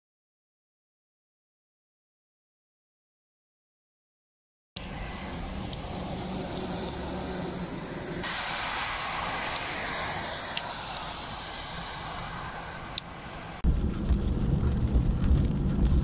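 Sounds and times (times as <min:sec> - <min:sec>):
tyres hissing on wet road: 0:04.8 - 0:14.3
rain: 0:04.8 - 0:16.0.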